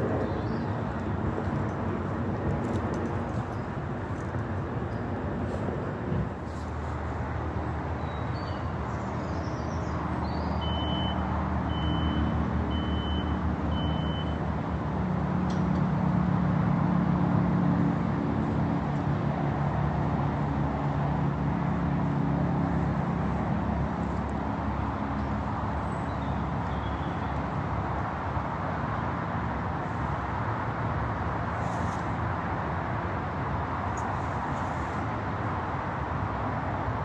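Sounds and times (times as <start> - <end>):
short high motion alarm beeps: 10.6 - 14.4.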